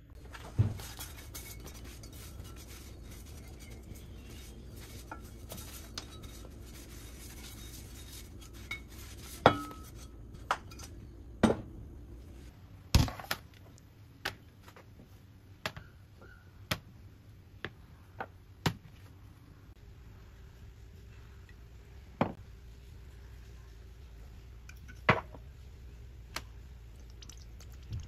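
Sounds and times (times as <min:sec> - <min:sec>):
low steady hum: 0:00.0 - 0:28.0.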